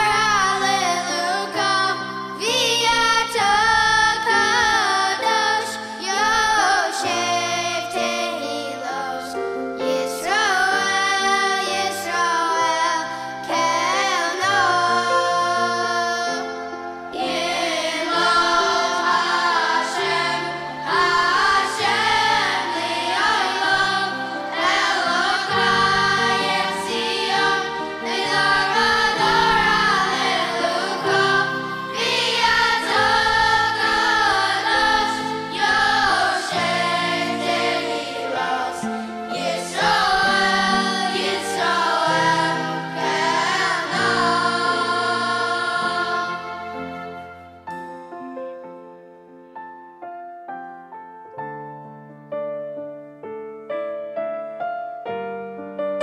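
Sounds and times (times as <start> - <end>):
boys' choir singing: 0.0 - 9.2, 10.0 - 16.4, 17.1 - 47.0
instrumental accompaniment: 0.0 - 56.0.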